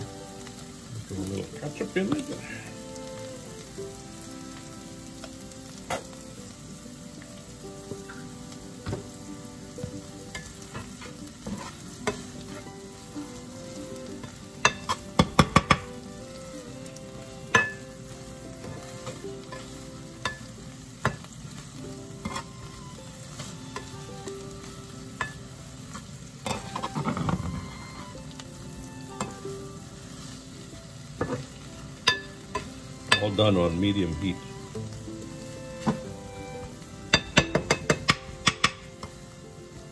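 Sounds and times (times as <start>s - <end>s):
vegetables sizzling in a pan: 0.0s - 39.9s
spatula scraping a pan: 10.3s - 15.9s, 16.9s - 20.5s, 22.2s - 24.6s, 25.2s - 28.2s
spatula knocking against pan: 14.7s - 15.9s, 37.2s - 39.1s.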